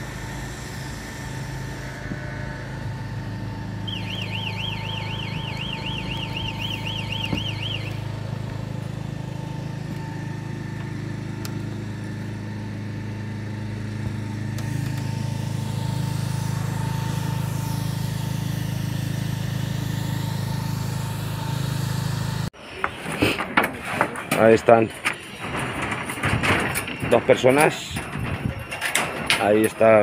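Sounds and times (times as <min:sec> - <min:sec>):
motor humming: 0:00.0 - 0:22.9.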